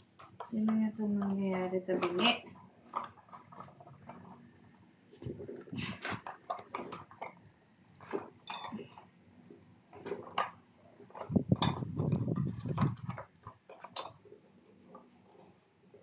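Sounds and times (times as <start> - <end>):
bike parts clicking and knocking: 0.0 - 4.4, 8.0 - 9.1, 9.9 - 14.2
rattling and rubbing: 0.0 - 16.0.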